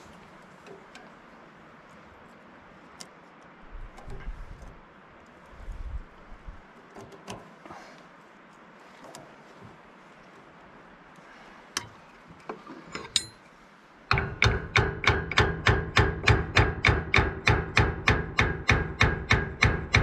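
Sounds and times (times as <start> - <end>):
hand tools clinking on metal: 12.8 - 13.5.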